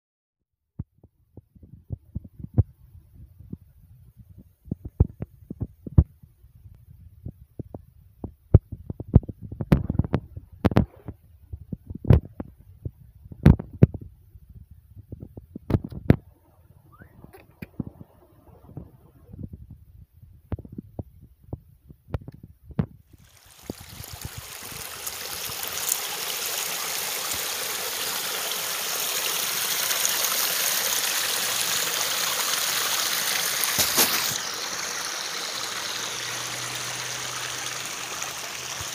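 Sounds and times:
water rushing in stream: 23.1s - 38.9s.

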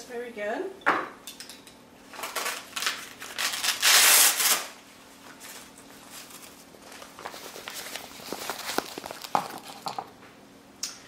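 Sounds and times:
velcro ripping open: 2.2s - 4.8s.

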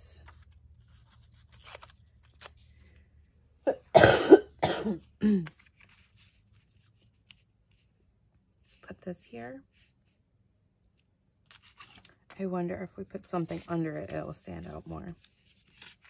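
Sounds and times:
paper rustling: 0.2s - 3.1s, 5.4s - 7.9s, 11.4s - 12.4s, 13.4s - 16.0s
person coughing: 3.7s - 5.6s.

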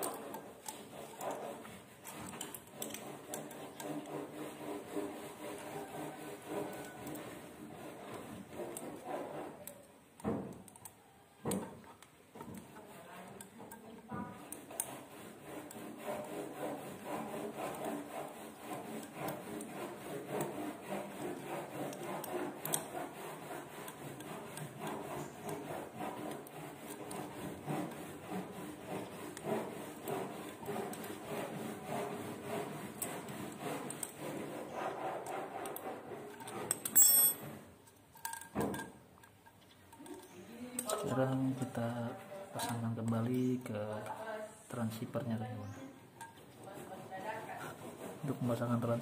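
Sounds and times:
metal rubbing: 0.0s - 49.0s
hex key clicking on metal screws: 36.8s - 37.4s.

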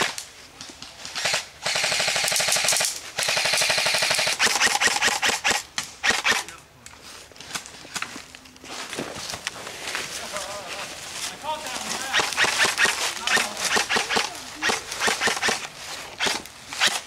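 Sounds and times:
airsoft rifle bursts: 1.2s - 6.5s, 12.0s - 17.0s.

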